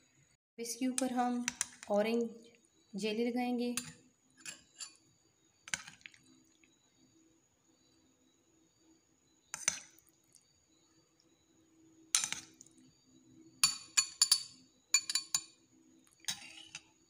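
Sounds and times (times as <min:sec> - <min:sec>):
spoon clinking against glass: 0:13.6 - 0:15.6.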